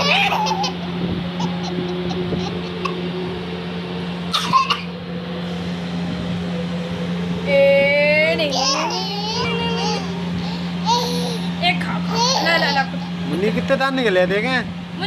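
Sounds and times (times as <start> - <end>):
toddler giggling: 0.0 - 3.0, 8.5 - 11.5, 12.1 - 13.1
high-pitched squeal of laughter: 0.0 - 3.1
steady low hum: 0.0 - 15.0.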